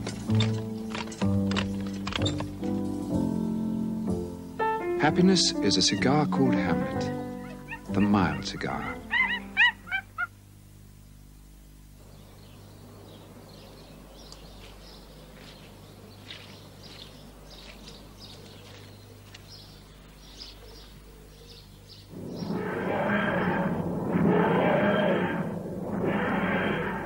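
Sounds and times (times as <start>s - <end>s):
small birds chirping: 0.3s - 10.4s, 11.0s - 27.0s
short high yelping calls: 7.3s - 10.4s, 22.3s - 27.0s.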